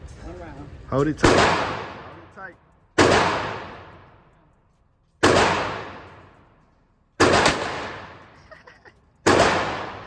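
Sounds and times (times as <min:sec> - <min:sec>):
pistol shots echoing indoors: 0:01.2 - 0:02.2, 0:02.9 - 0:04.1, 0:05.2 - 0:06.4, 0:07.1 - 0:08.3, 0:09.2 - 0:10.0.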